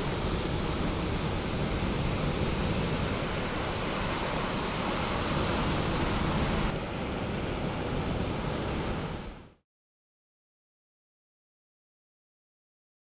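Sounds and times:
ocean waves crashing: 0.0 - 9.6.

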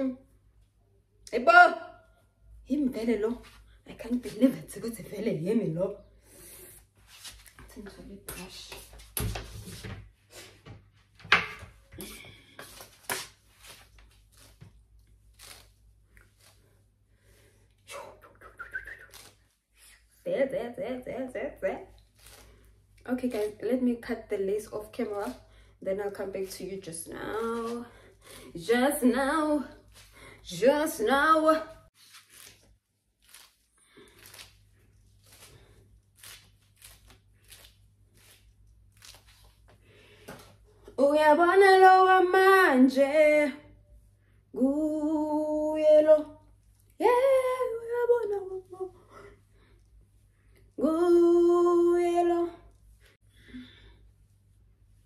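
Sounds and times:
brush swishing through wig: 6.9 - 7.6, 12.6 - 16.8, 31.8 - 39.7.

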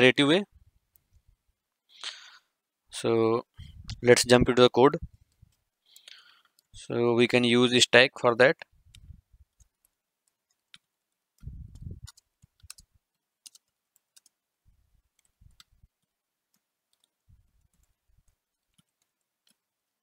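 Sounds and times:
keyboard typing: 8.9 - 14.4, 15.1 - 20.0
dull low thumps: 11.4 - 12.1.

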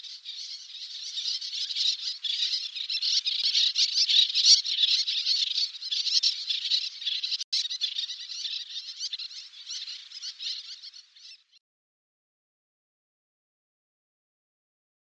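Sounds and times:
terns calling: 0.0 - 11.6.

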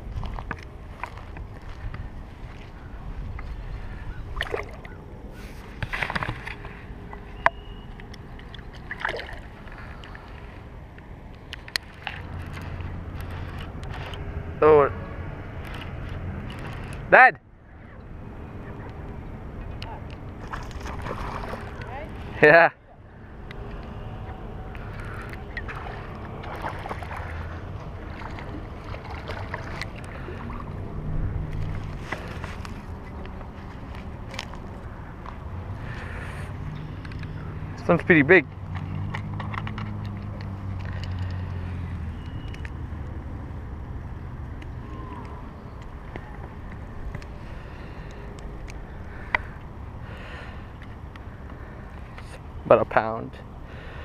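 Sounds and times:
wind on microphone: 0.0 - 6.4
shallow water sloshing: 0.0 - 10.6, 20.4 - 22.4, 24.3 - 35.0
low steady hum: 0.0 - 39.3.

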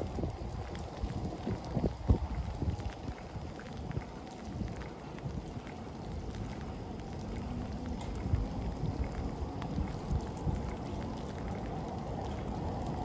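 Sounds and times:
wind buffeting microphone: 0.0 - 13.0
tram rumbling over wet rails: 6.9 - 13.0.

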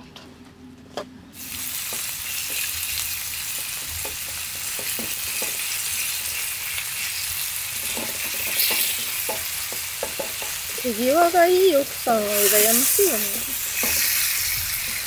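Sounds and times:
meat sizzling in a frying pan: 1.4 - 15.0
utensil scraping a pan: 7.8 - 10.8, 12.3 - 15.0.

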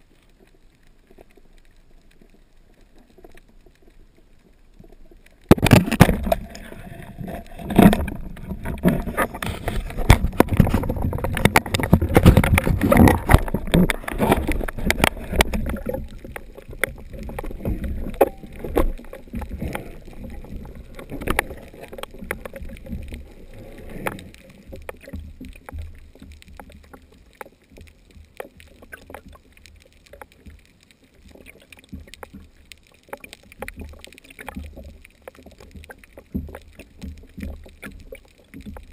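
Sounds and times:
low water hiss: 0.0 - 38.9
water rushing underwater: 0.0 - 38.9.

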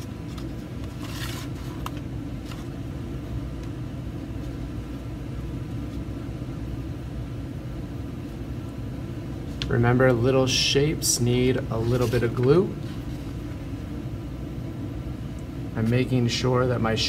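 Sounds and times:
low background rumble: 0.0 - 17.0
soft scrapes: 0.3 - 1.8, 11.7 - 13.4.

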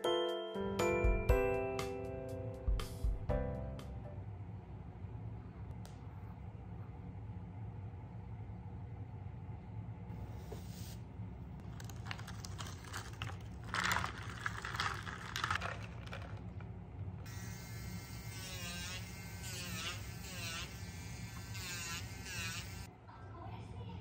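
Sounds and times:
rattling: 11.6 - 16.8
electric nail drill whining: 17.3 - 22.9.

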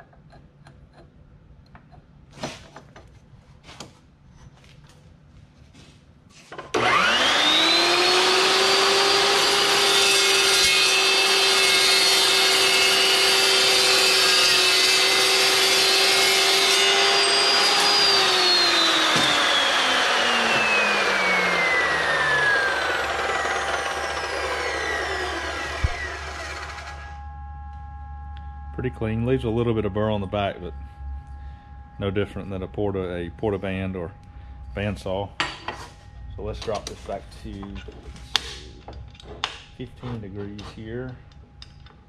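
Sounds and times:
chop saw whining: 6.6 - 27.5.

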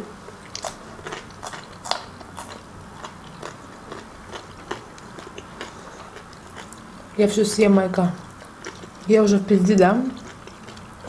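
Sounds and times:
person chewing: 0.3 - 7.1, 8.2 - 9.1, 10.1 - 11.0.

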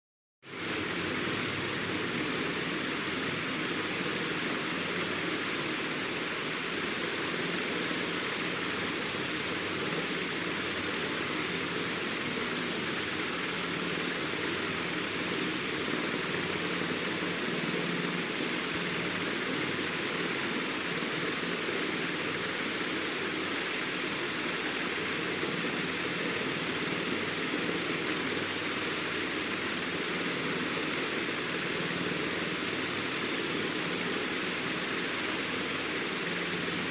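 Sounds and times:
steady rushing hiss: 0.5 - 36.9
faint thin high whistle: 25.8 - 28.0.

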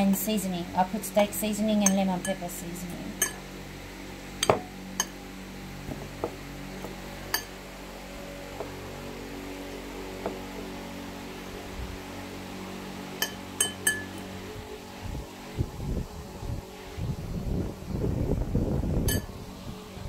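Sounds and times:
low hum: 0.0 - 20.0
fork clinking against ceramic bowls: 13.2 - 14.2.

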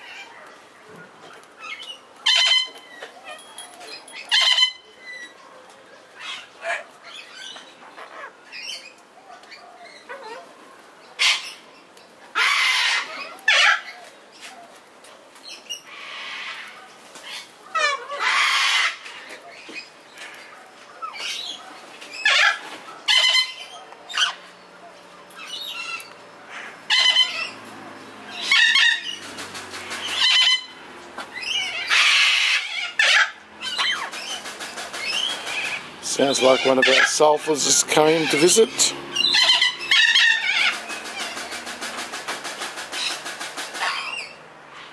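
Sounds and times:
parrots chirping and chattering: 1.0 - 5.4, 6.2 - 10.6, 11.2 - 14.5, 15.4 - 44.9
parrot harsh squawk: 2.3 - 2.8, 4.3 - 4.8, 12.4 - 13.9, 17.3 - 19.0, 22.2 - 24.4, 25.7 - 27.6, 28.4 - 29.2, 30.0 - 30.8, 31.4 - 34.1, 35.1 - 37.2, 38.2 - 41.4.

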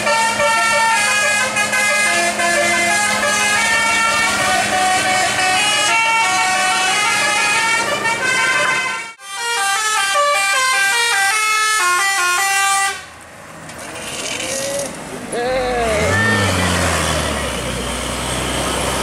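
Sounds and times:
bus engine running: 0.0 - 9.1, 12.4 - 19.0
multi-tone bus horn melody: 0.0 - 13.1.

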